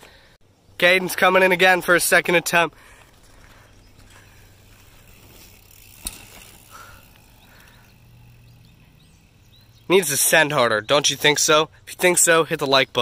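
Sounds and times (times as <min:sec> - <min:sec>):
mountain bike rolling over dirt: 0:01.1 - 0:10.7.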